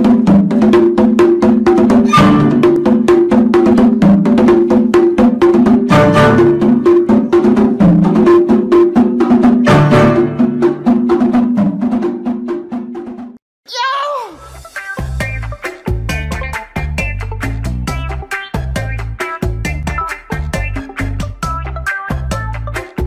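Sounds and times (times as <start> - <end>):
clicking percussion beat: 0.0 - 13.4, 14.6 - 23.0
low repeating notes: 5.9 - 8.2.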